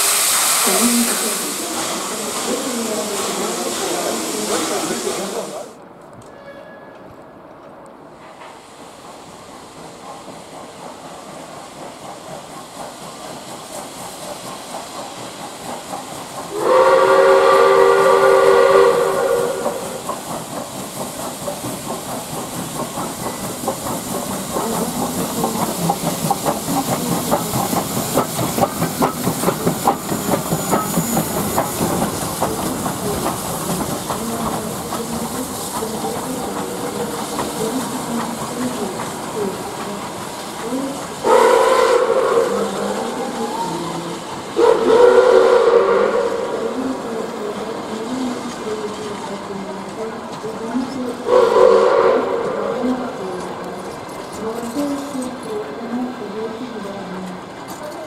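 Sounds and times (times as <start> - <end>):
steam hiss: 0.0 - 5.8, 8.1 - 58.0
locomotive exhaust and wheel clatter: 6.0 - 56.2
steam whistle blast: 16.5 - 20.0, 41.2 - 42.6, 44.6 - 46.5, 51.3 - 52.6.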